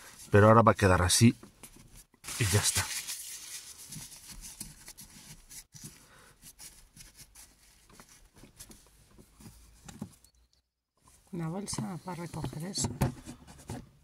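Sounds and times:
paper towel rustling: 2.2s - 8.8s.

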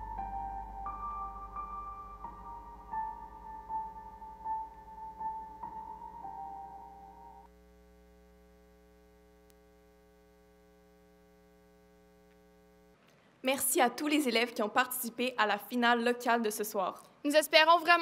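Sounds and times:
faint electrical hum: 0.0s - 18.0s.

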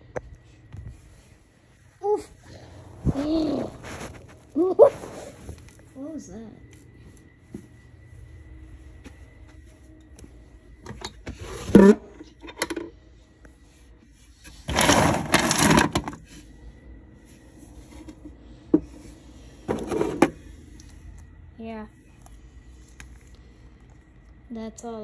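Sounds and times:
plastic toys rustling and clattering: 3.1s - 4.5s, 14.4s - 16.3s.

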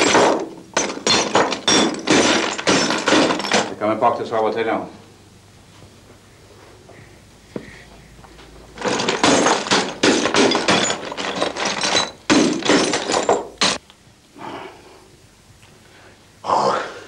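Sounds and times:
glass bottles smashing: 0.0s - 3.7s, 8.8s - 13.8s.

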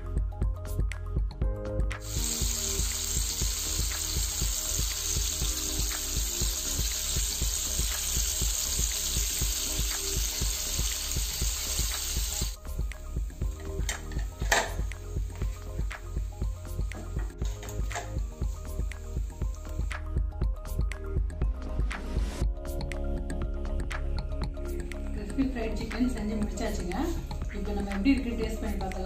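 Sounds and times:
background music with beat: 0.0s - 29.0s
hot oil sizzling: 2.0s - 20.1s.

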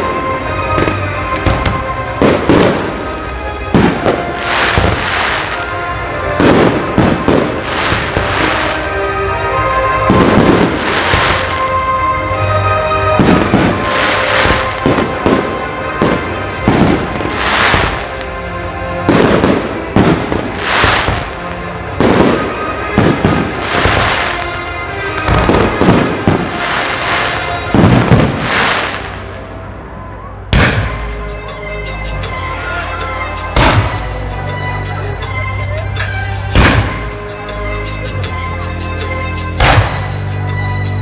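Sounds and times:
firework crackle: 0.0s - 9.3s, 10.0s - 11.9s, 13.2s - 29.6s
music playing: 0.0s - 41.0s.

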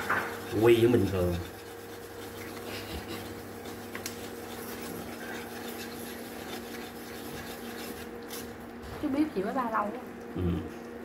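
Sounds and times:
chopsticks scraping metal pot: 0.0s - 8.5s
cooktop hum: 0.0s - 11.0s.

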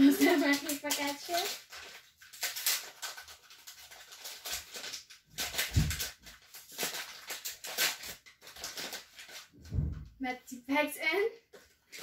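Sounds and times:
packaging rustling: 0.0s - 9.6s
soft thump: 9.6s - 10.2s.

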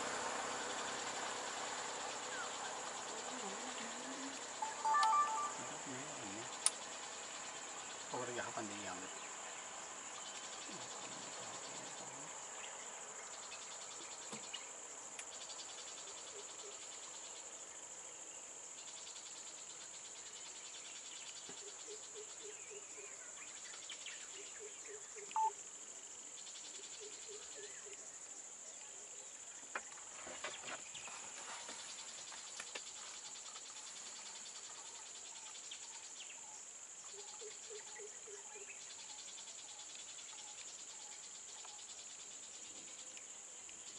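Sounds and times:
high-pitched drone of crickets: 0.0s - 43.9s
sharp chirp: 4.6s - 6.4s, 25.4s - 25.6s.

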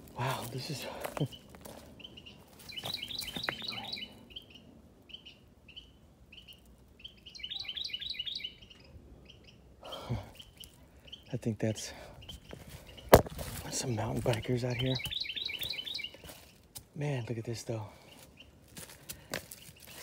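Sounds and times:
small bird chirping: 1.2s - 11.5s, 12.2s - 16.7s.

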